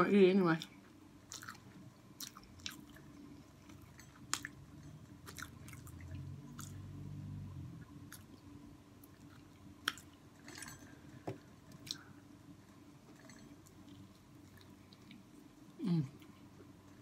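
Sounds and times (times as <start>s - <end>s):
person chewing crunchy food: 1.2s - 6.9s, 7.8s - 10.8s.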